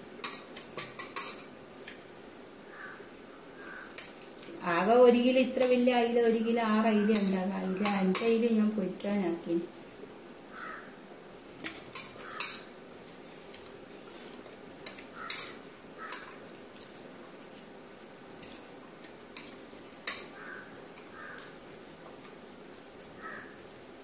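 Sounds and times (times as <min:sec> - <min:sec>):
wet squishing: 0:14.4 - 0:23.7.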